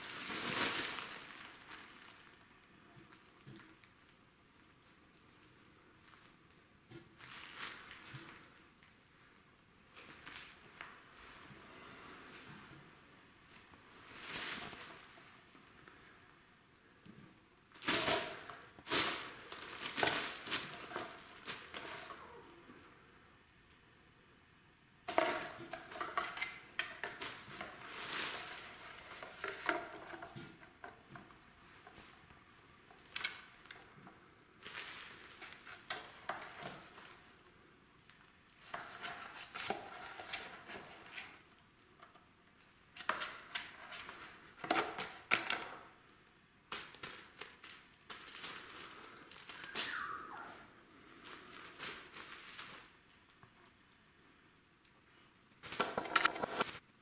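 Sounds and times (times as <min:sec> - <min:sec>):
cellophane bag crinkling: 0:00.0 - 0:02.6, 0:07.2 - 0:08.9, 0:17.7 - 0:22.3, 0:34.6 - 0:37.3, 0:46.7 - 0:50.4, 0:51.1 - 0:53.3
paper tube rolling on tile floor: 0:55.7 - 0:56.8.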